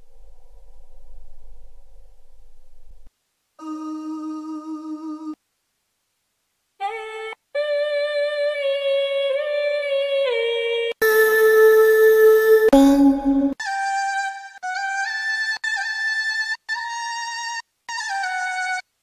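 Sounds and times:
solo voice singing held notes: 10.3s - 13.6s.

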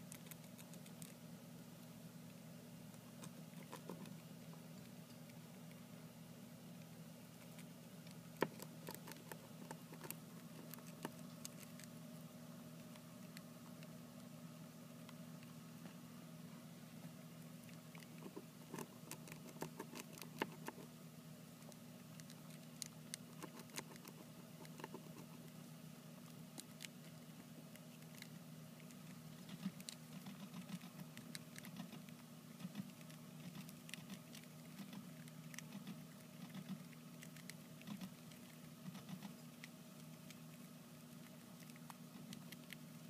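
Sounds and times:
hamsters nibbling seeds: 0.0s - 43.0s
low steady hum: 0.0s - 43.0s
small clicks and crackles: 26.2s - 43.0s.

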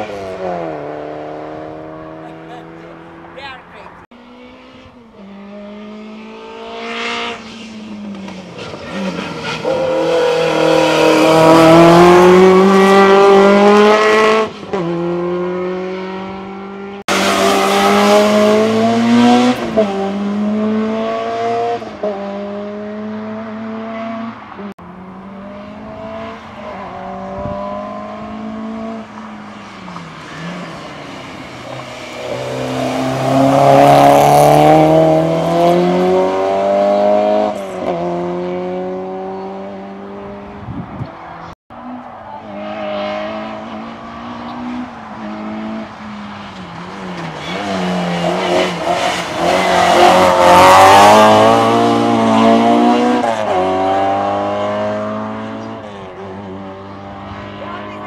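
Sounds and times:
race car engine revving: 0.0s - 29.4s, 30.0s - 40.6s, 42.2s - 58.0s.

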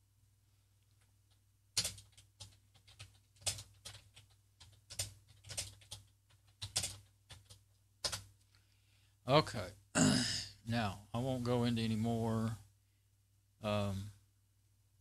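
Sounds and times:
keyboard typing clicks: 0.9s - 8.3s.

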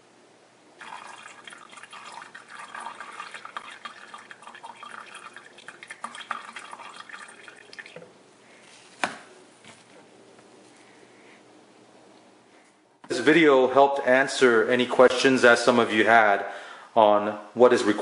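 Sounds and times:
fluid dripping into plastic jug: 0.8s - 8.2s.

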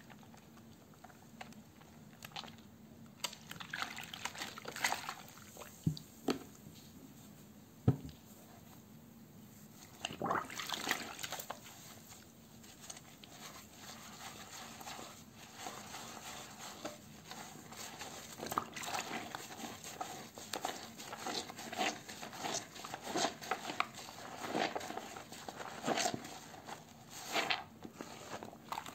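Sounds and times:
soap rubbing on wet sponge: 10.6s - 28.9s.

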